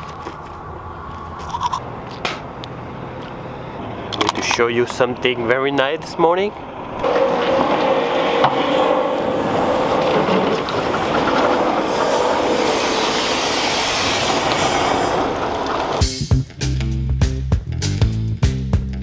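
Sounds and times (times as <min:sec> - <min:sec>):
truck rolling over rough pavement: 0:00.0 - 0:16.1
thin steady squeal: 0:07.0 - 0:15.6.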